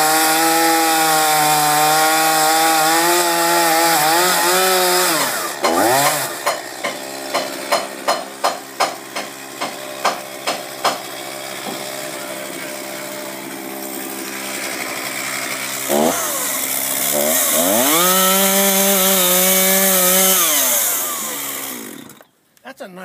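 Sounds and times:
chainsaw cutting timber: 0.0s - 22.3s
sharp knocks: 5.2s - 11.9s.

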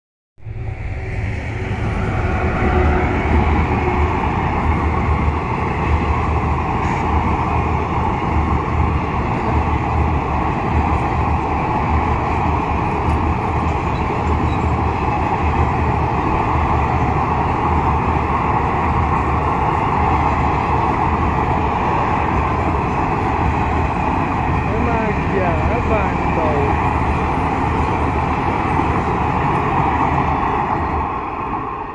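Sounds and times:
train wheels rumbling on rails: 0.5s - 31.9s.

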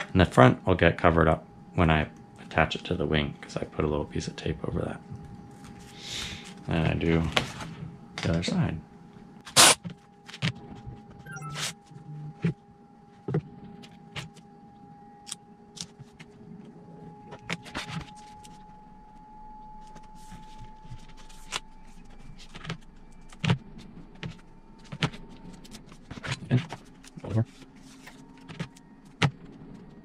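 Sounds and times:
packing tape ripping off roll: 9.4s - 10.5s.

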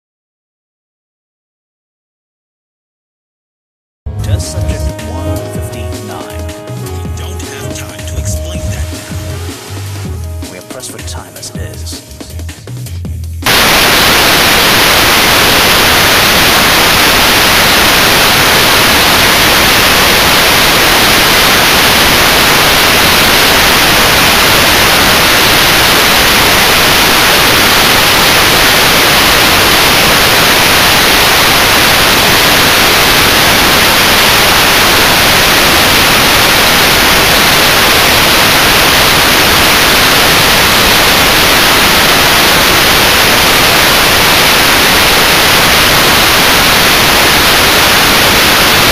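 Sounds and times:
tv static hiss: 4.5s - 12.5s, 13.4s - 48.9s.

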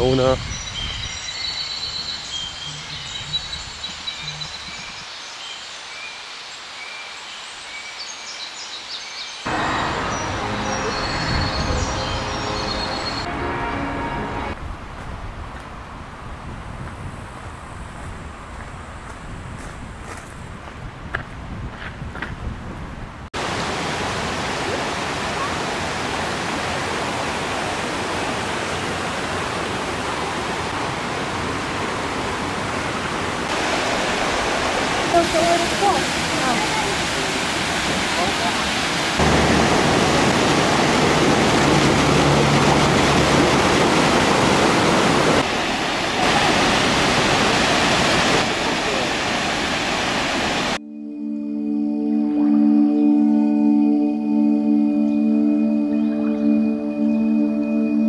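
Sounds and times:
bird chirps: 0.4s - 6.2s
waterfall rushing: 9.4s - 14.6s, 23.4s - 50.8s
wind buffeting microphone: 14.6s - 23.3s.

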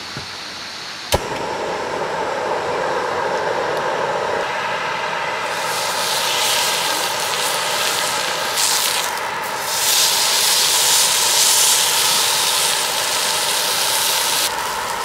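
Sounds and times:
gas burner clicking alight: 1.1s - 4.5s, 5.5s - 15.0s
gas flame rushing: 1.1s - 15.0s
beef sizzling on a hot pan: 5.4s - 15.0s.

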